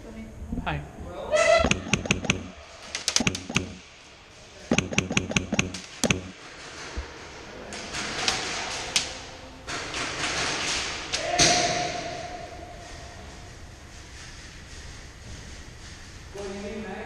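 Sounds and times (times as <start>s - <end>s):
pellets striking wooden walls: 1.6s - 2.5s, 3.2s - 3.8s, 4.7s - 6.4s.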